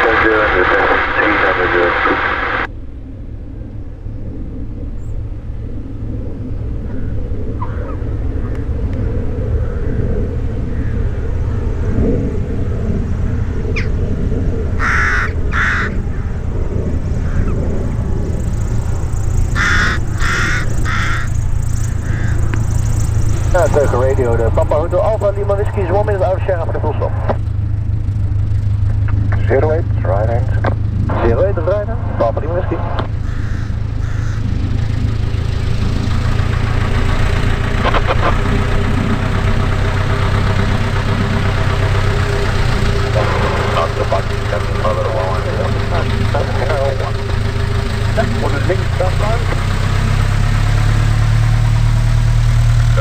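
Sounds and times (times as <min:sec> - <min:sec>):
small plane engine idling: 0:00.0 - 0:53.0
crow cawing: 0:06.9 - 0:08.7, 0:10.6 - 0:11.2, 0:14.8 - 0:16.4, 0:17.0 - 0:17.6, 0:19.4 - 0:22.7, 0:33.2 - 0:34.6.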